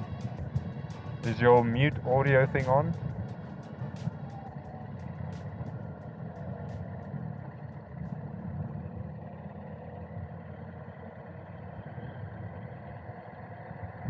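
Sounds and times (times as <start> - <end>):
wind noise: 0.0 - 2.2
motorcycle engine rumble: 0.0 - 14.0.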